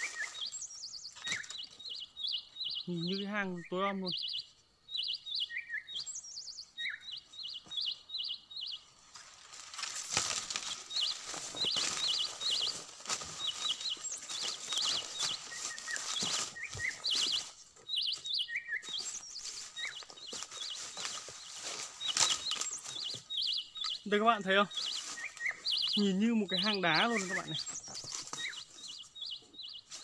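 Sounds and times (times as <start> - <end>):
songbird chirping: 0.0 - 30.0
rustling with knocks: 9.1 - 23.9.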